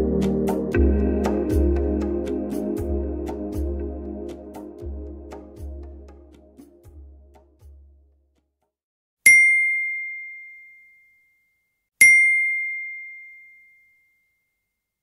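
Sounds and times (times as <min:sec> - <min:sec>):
single-note chime dings: 0:09.3 - 0:11.4, 0:12.0 - 0:14.3.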